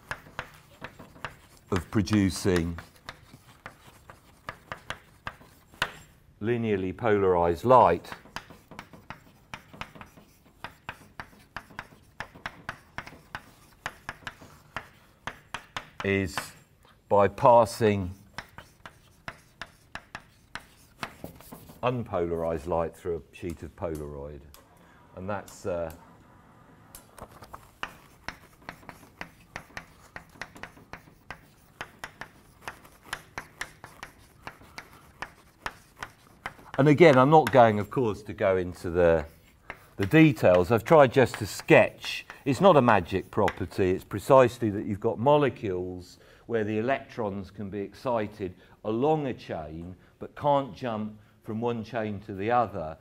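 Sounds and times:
chalk on blackboard: 0.0 - 6.2, 7.6 - 16.7, 17.3 - 22.6, 27.2 - 44.0.

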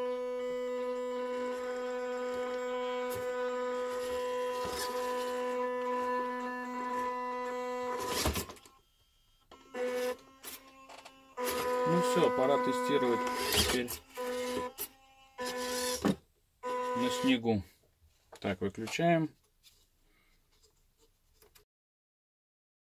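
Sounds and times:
toy truck motor whining: 0.0 - 17.4.

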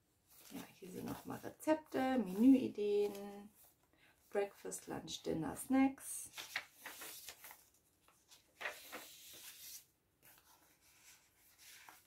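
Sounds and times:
paper pages rustling: 0.3 - 3.9, 6.2 - 12.0.

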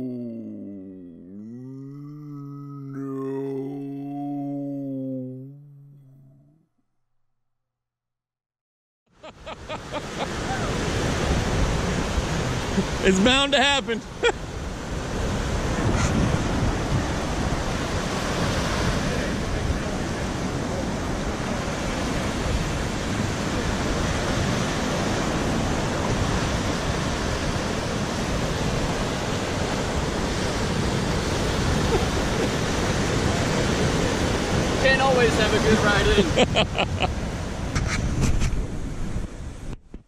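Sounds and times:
ocean surf breaking: 9.4 - 39.6.

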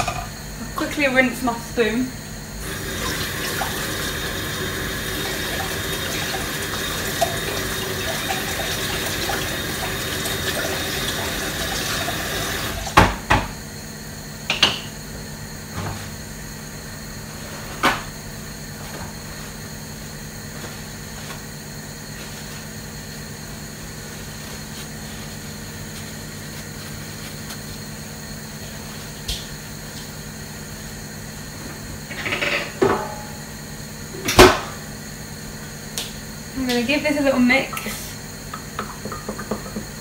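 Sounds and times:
kitchen items knocking: 38.8 - 39.9.

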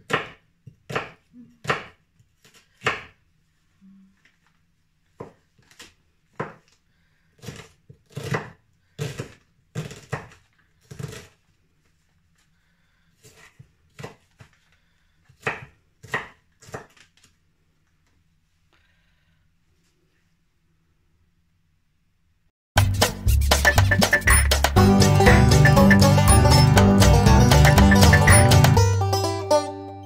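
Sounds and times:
knife chopping onion: 0.0 - 3.2, 7.4 - 11.4, 13.2 - 14.3, 15.3 - 17.0.

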